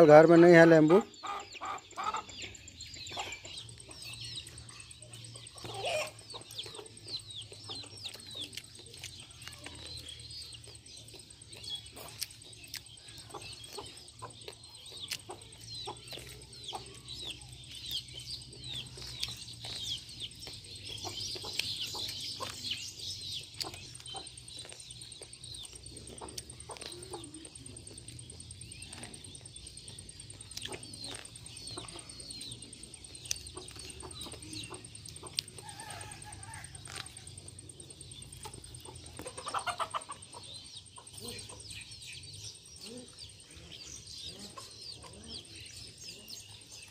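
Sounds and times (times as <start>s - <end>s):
small birds chirping: 0.0s - 46.9s
corn on the cob being chewed: 3.6s - 39.4s.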